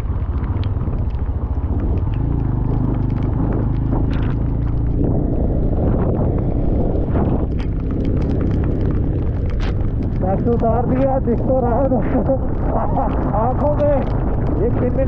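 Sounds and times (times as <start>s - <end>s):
road and wind noise: 0.0s - 15.0s
vehicle engine running: 0.0s - 15.0s.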